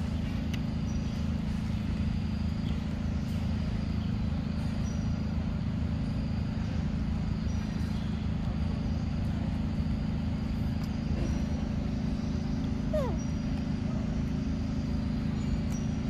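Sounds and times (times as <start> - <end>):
faint high chirps: 12.2 - 13.6.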